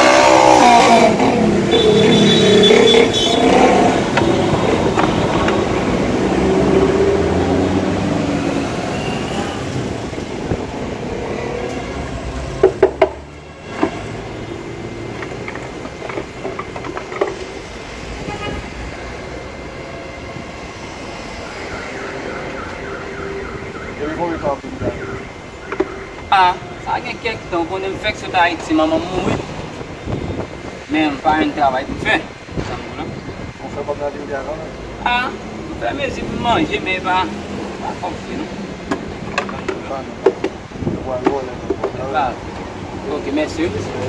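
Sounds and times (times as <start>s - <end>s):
vehicle passing close by: 0.0s - 15.1s
light traffic background: 0.0s - 44.0s
sharp knocks: 12.6s - 14.0s.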